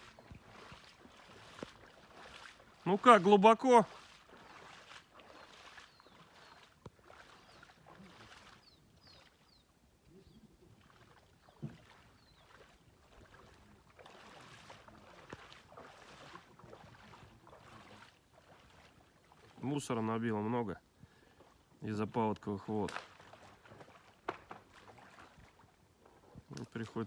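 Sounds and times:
floodwater sloshing: 0.0 - 27.0.

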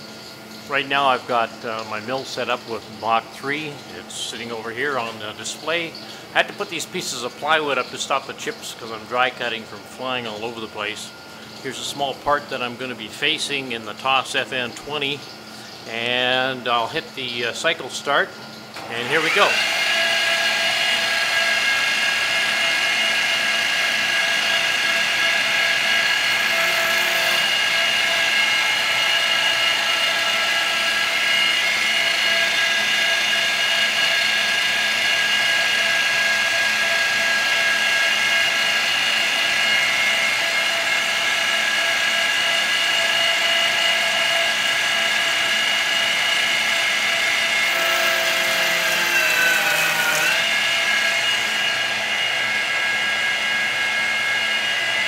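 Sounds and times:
milling machine whining: 18.8 - 55.0.

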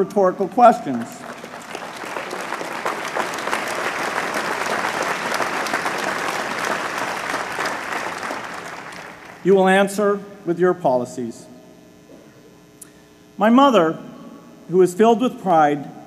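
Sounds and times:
crowd applauding: 0.0 - 9.7.

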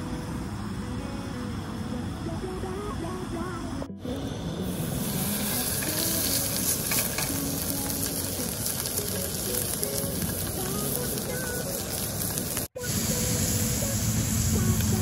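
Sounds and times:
patty sizzling in a skillet: 4.6 - 15.0.

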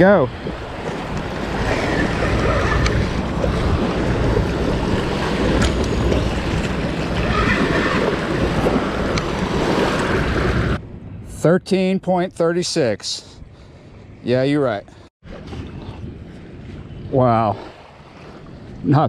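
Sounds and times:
small waves washing ashore: 0.0 - 10.8, 15.2 - 19.0
wind on microphone: 0.0 - 11.4, 14.9 - 19.0.

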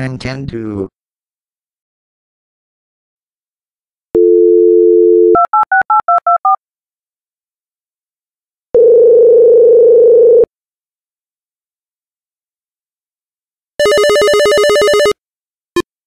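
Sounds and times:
telephone dial tone: 4.2 - 6.6, 8.8 - 10.5, 13.8 - 15.2
telephone ringing tone: 4.2 - 6.6, 8.7 - 10.5, 13.8 - 15.2.

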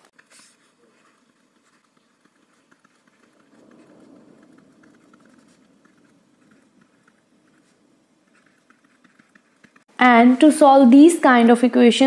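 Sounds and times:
faint low hum: 0.0 - 10.3
stylus tapping on screen: 1.5 - 9.9.

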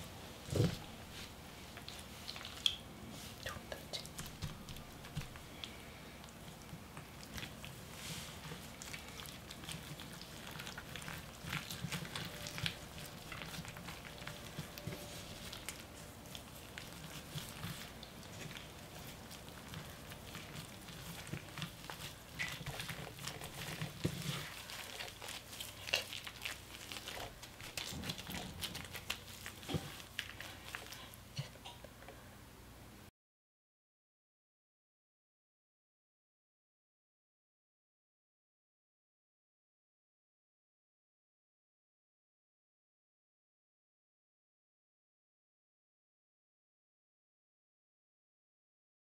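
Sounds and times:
soft squelches of wet leaves: 1.0 - 31.3
crinkling leaves and gloves: 4.1 - 31.3.

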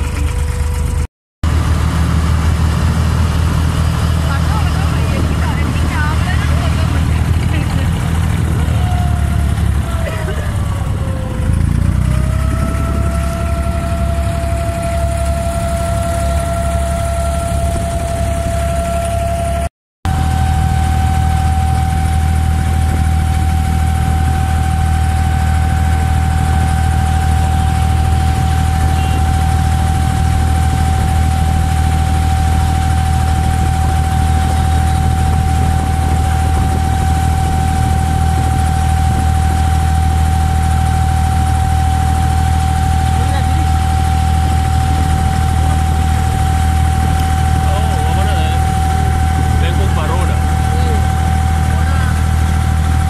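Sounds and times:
boat engine drone: 0.0 - 53.0
thin steady whine: 0.0 - 53.0.

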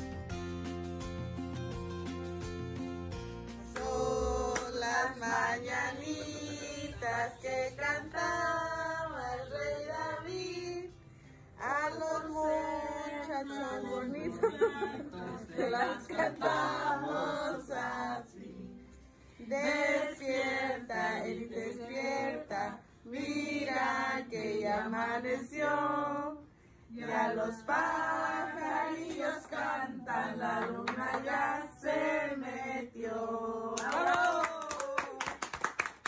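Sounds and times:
hand clapping: 3.5 - 5.0, 29.0 - 29.6, 30.5 - 31.4, 33.8 - 36.0
group singing: 3.7 - 11.0, 11.6 - 34.1.

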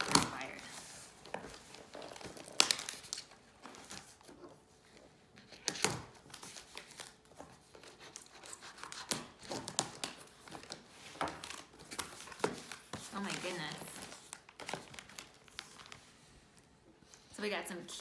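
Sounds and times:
paper crinkling: 0.0 - 17.3
cardboard and tape ripping: 1.5 - 4.2.

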